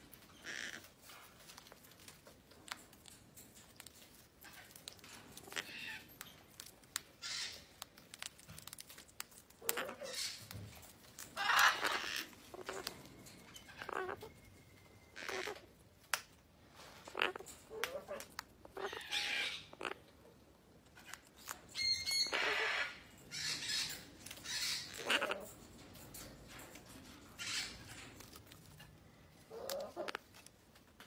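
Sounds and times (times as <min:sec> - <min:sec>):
cockatoo raspy calls: 0:00.3 - 0:01.0, 0:11.4 - 0:12.9, 0:22.1 - 0:25.6, 0:29.4 - 0:30.3.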